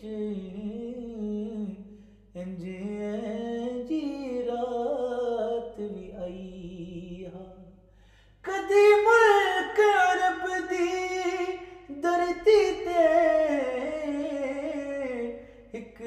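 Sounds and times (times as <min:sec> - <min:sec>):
person singing unaccompanied: 0:08.5 - 0:16.0.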